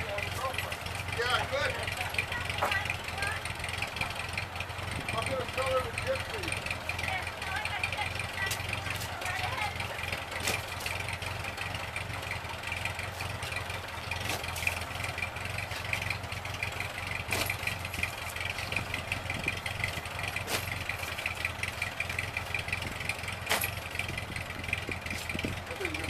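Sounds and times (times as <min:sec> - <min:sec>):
tractor engine idling: 0:00.0 - 0:26.0
shovel knocks digging: 0:20.4 - 0:20.7.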